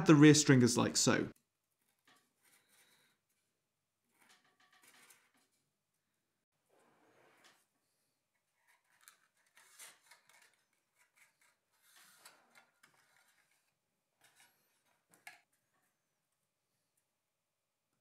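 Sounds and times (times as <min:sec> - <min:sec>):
soft scrapes and rustles: 0:01.8 - 0:03.5, 0:06.6 - 0:15.9.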